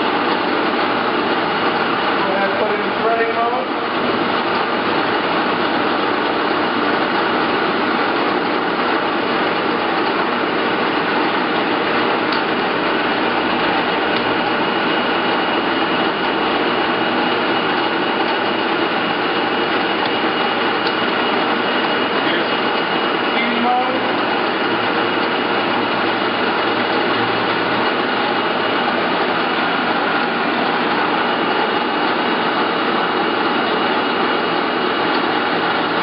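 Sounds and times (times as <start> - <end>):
lathe running: 0.0 - 36.0.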